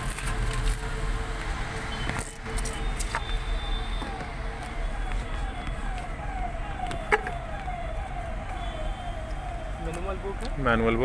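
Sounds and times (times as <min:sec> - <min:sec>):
electronic falling siren tone: 0:02.8 - 0:11.0.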